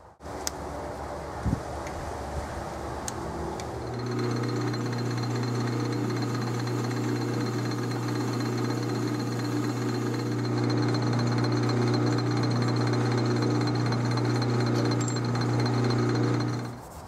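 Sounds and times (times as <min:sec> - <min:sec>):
parting tool cutting metal: 0:03.7 - 0:16.8
metal lathe humming: 0:03.8 - 0:16.8.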